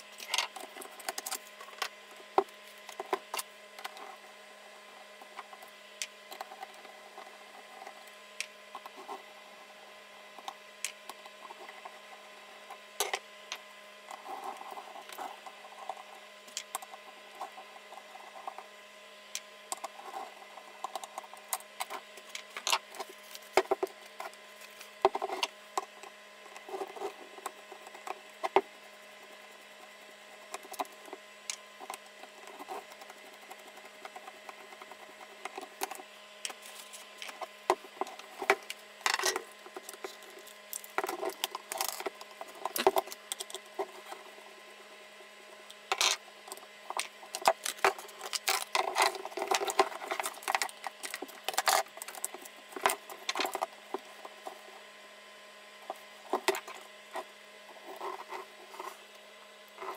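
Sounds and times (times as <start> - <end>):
faint hum: 0.0 - 59.9
clicks scrapes and light knocks: 30.5 - 44.4, 45.9 - 54.7, 55.8 - 59.9.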